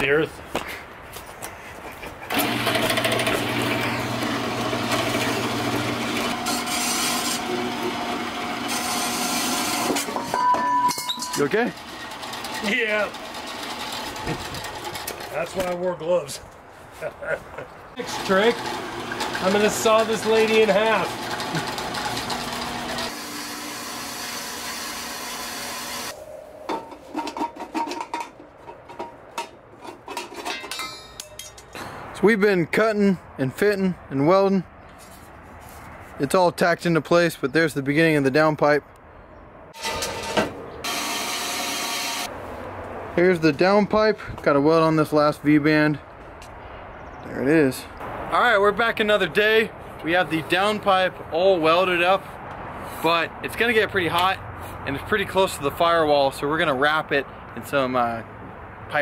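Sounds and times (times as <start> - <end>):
bandsaw cutting steel tube: 2.3 - 10.4, 11.2 - 15.2, 18.0 - 26.2, 39.8 - 42.3
metal pipe pieces clinking: 10.0 - 11.5, 26.7 - 31.8.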